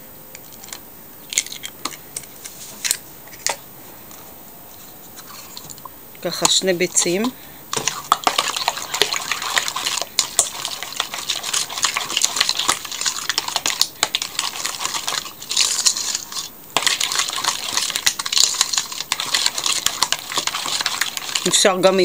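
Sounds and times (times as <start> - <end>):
metal spoon stirring in steel bowl: 6.3 - 22.0.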